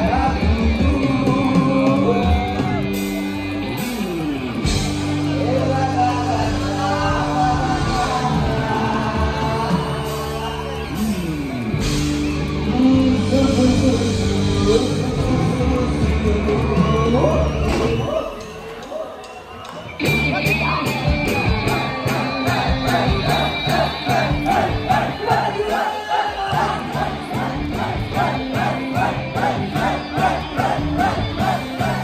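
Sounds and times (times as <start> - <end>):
person singing into microphone: 0.0 - 2.9, 5.3 - 11.1, 12.6 - 18.3
live band with bass line: 0.0 - 18.8, 19.8 - 32.0
crowd yelling along: 0.0 - 32.0.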